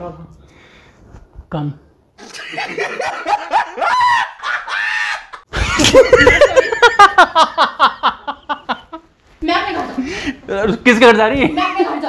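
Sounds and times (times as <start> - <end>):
loud laughter with shrieking: 2.2 - 7.6.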